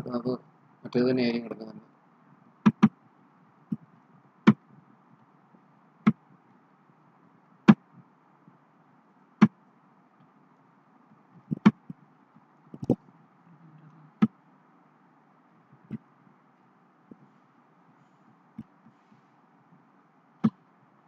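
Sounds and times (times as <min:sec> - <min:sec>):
faint steady hum: 0:00.0 - 0:21.0
sharp clicks: 0:02.6 - 0:03.0.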